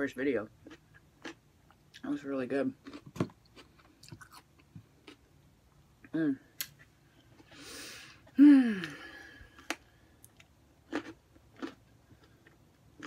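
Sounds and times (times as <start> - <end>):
airy intake of breath: 7.5 - 9.4
loud voiced sigh: 7.8 - 9.4.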